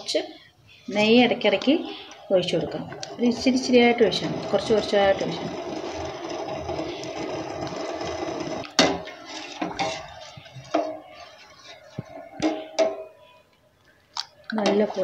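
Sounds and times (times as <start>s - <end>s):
pot simmering: 2.2s - 12.7s
ladle scraping pot: 2.6s - 13.0s.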